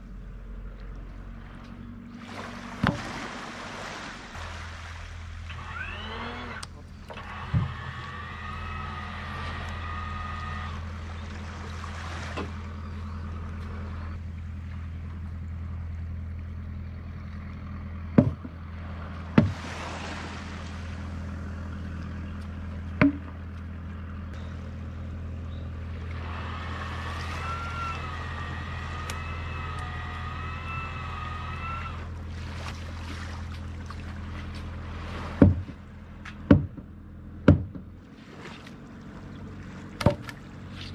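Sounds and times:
motor humming: 0.0s - 40.9s
wavering high whine: 4.3s - 16.1s, 20.5s - 32.8s
sharp knocks: 18.2s - 18.6s, 23.0s - 23.4s, 35.4s - 35.8s, 36.5s - 37.9s.

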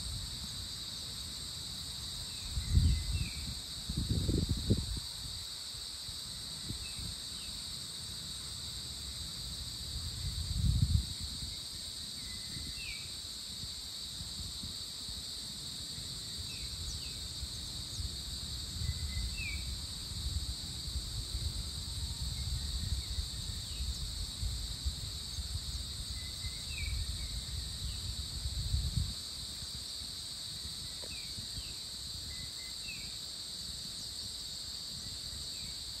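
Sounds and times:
insect chirps: 0.0s - 36.0s
insects buzzing trill: 0.0s - 36.0s
wind rumble on microphone: 2.3s - 5.5s, 9.8s - 15.2s, 16.6s - 30.0s.

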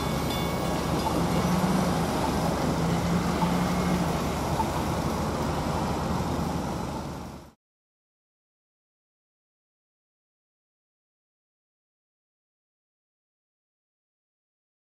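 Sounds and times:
crossing bell striking: 0.0s - 4.9s
low engine hum: 0.0s - 7.6s
road traffic: 0.0s - 7.6s.

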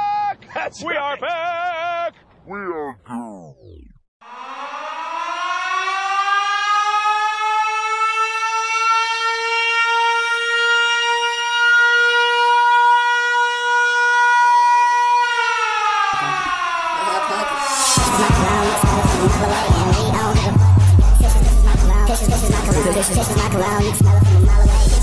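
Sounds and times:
siren-like wailing tone: 3.6s - 24.5s
music beat: 16.2s - 25.0s.

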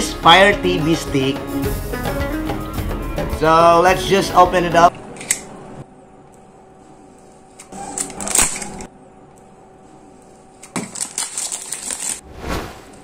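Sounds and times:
knife slitting plastic wrap: 10.7s - 12.2s
plastic wrap crinkling: 10.7s - 12.2s.

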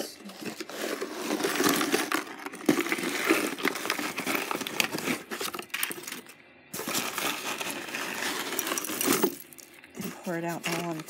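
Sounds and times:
plastic bags crinkling: 0.0s - 11.0s
jewelry clinking and rattling: 0.8s - 11.0s.

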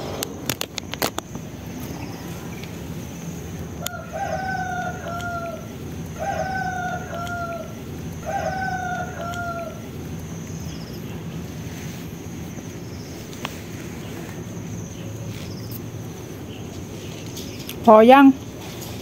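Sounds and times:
rooster crowing: 2.0s - 11.1s.

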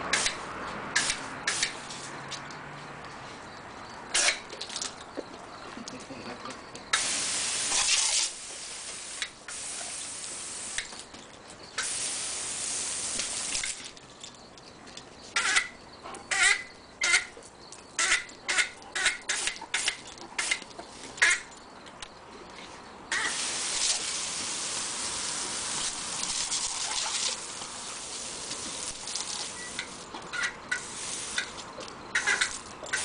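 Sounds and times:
hose nozzle spraying water: 7.0s - 11.0s, 11.8s - 13.9s, 23.1s - 30.1s, 30.7s - 31.6s, 32.2s - 33.0s.

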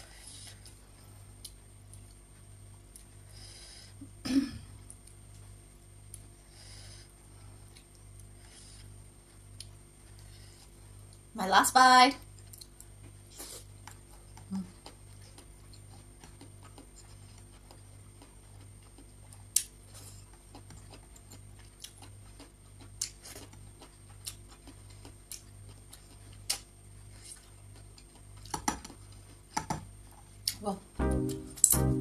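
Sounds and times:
person chewing rice: 0.4s - 3.3s, 7.3s - 11.3s, 12.4s - 30.6s
faint low pulsing hum: 30.8s - 32.0s.

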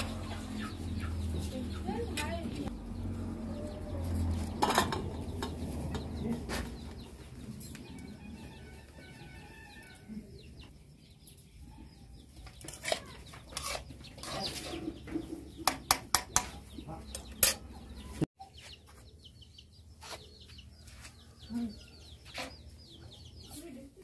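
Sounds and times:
metal ladle scraping metal pan: 12.7s - 15.0s.

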